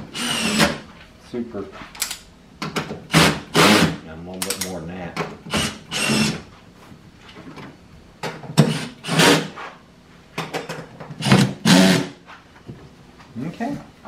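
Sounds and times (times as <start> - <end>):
drill driving screws into plastic: 0.1 - 0.8, 3.1 - 4.0, 5.5 - 6.4, 8.6 - 9.5, 11.2 - 12.2.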